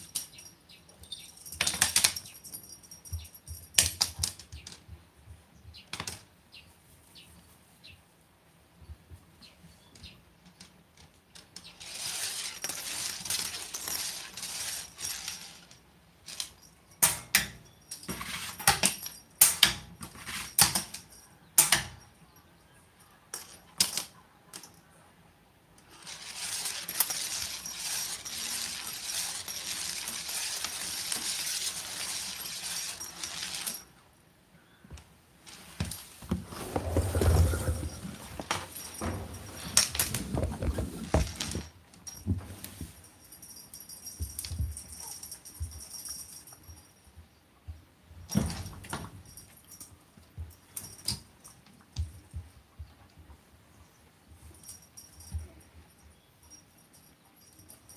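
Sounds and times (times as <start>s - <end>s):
metallic clicks and jingles: 0.0s - 4.9s, 11.4s - 24.8s, 25.8s - 34.0s, 35.6s - 47.2s, 48.3s - 52.6s, 54.4s - 57.9s
toy swishing across wooden floor: 11.8s - 16.5s, 25.9s - 33.8s, 35.5s - 41.7s.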